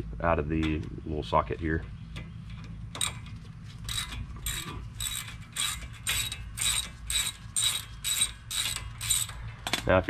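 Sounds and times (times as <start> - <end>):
hand ratchet clicking: 3.9 - 9.9.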